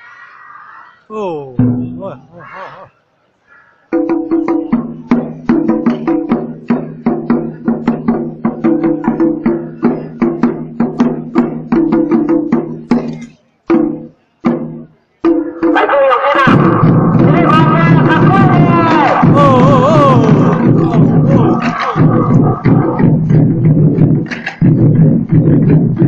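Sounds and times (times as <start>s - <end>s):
barrel drums beaten with sticks: 1.6s - 2.2s, 16.5s - 26.0s.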